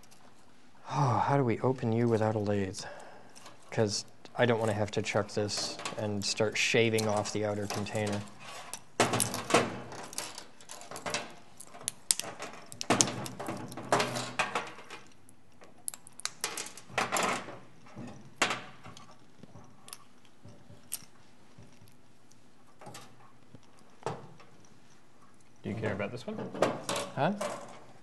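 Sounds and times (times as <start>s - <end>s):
small metal parts clinking and scraping: 18.9s - 25.7s.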